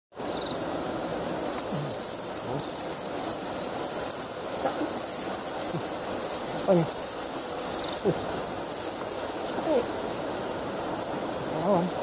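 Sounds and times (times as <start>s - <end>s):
insects trilling: 0.2s - 12.0s.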